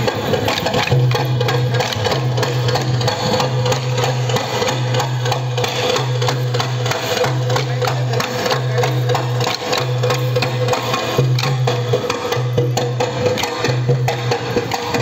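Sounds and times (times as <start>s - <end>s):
wooden sticks clacking: 0.0s - 9.8s.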